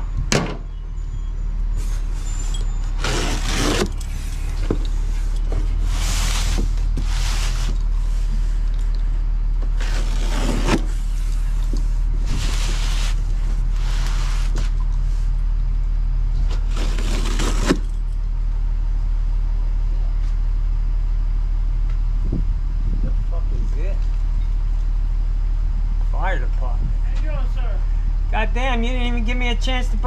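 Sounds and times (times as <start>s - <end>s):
vehicle engine idling: 0.0s - 30.0s
knocks on metal liftgate: 0.3s - 0.7s
box scraping on metal liftgate: 1.8s - 8.6s, 9.7s - 14.8s.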